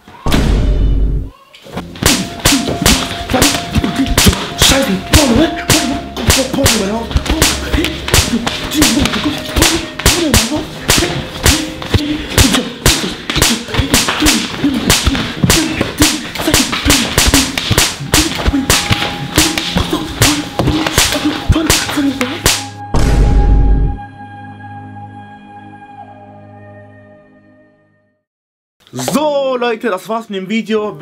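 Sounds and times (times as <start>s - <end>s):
sharp smacking hits: 1.8s - 23.5s
man crying out in pain: 2.1s - 22.4s.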